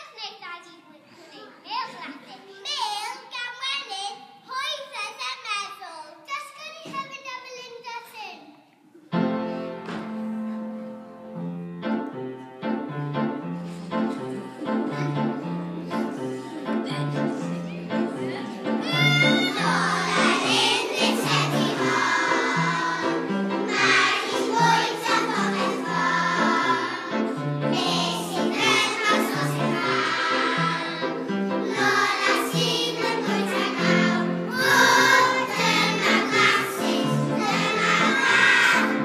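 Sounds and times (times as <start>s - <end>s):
children's choir singing: 13.9s - 39.0s.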